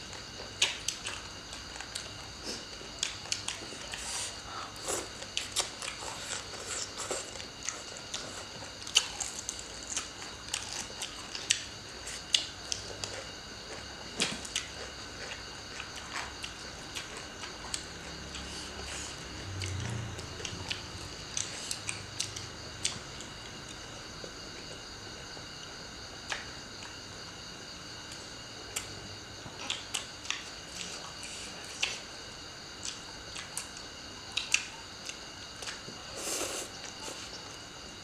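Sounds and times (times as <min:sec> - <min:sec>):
chewing and crunching: 0:00.0 - 0:37.6.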